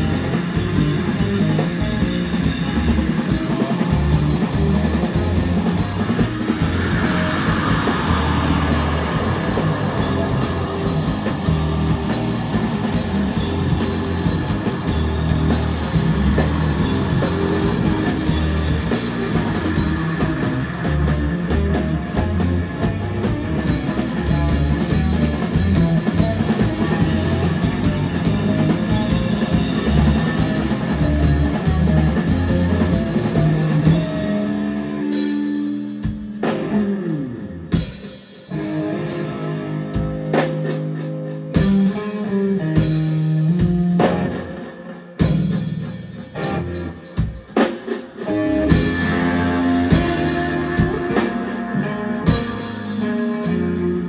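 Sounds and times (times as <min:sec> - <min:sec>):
rock band playing: 0:00.0 - 0:54.0
guitar notes ringing with pitch slide: 0:48.2 - 0:54.0.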